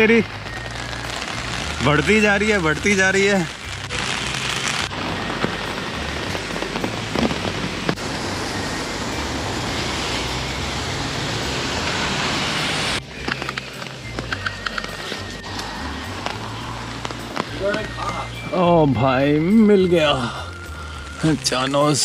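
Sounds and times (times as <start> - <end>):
heavy rain falling: 0.0 - 22.0
sharp taps of raindrops: 6.6 - 8.0, 13.2 - 15.0, 15.6 - 18.2.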